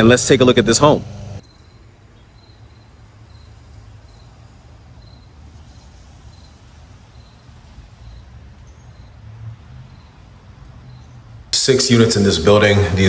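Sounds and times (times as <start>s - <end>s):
faint hiss: 0.3s - 9.9s
insect chirping: 1.4s - 11.5s.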